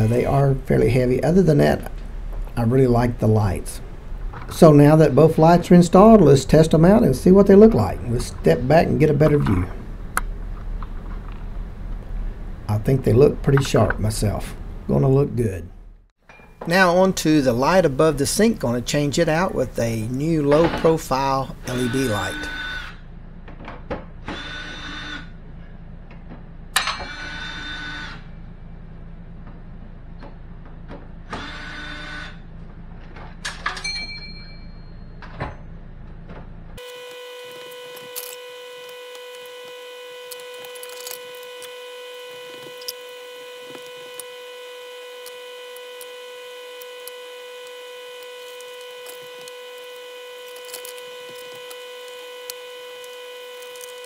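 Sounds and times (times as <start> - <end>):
cordless drill running: 21.6 - 23.0, 24.3 - 25.3, 31.4 - 32.4, 36.8 - 54.0
high-pitched whine: 36.8 - 54.0.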